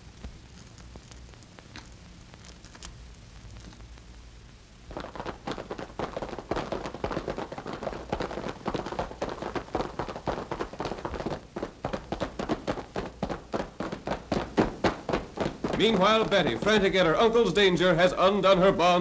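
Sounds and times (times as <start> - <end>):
galloping horse hoofbeats: 4.9 - 19.0.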